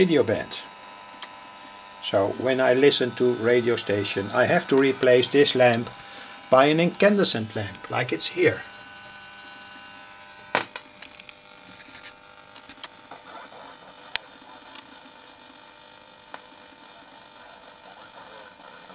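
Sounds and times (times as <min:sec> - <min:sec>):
radio speaker hiss: 0:00.0 - 0:09.2
radio crackles and clicks: 0:00.3 - 0:18.9.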